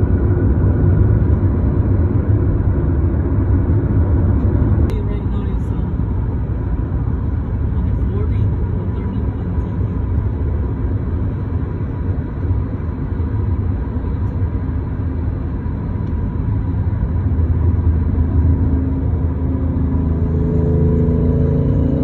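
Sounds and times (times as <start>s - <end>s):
road and engine noise in car: 0.0s - 22.0s.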